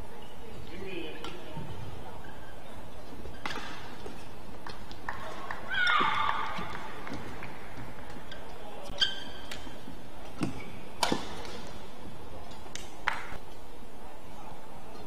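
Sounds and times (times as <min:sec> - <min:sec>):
rackets hitting shuttlecock: 0:03.2 - 0:11.8
shoes squeaking on mat: 0:08.9 - 0:09.8.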